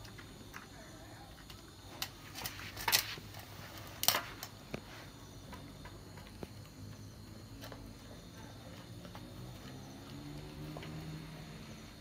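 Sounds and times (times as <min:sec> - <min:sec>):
dog eating from a bowl: 0:00.0 - 0:03.3, 0:05.4 - 0:11.5.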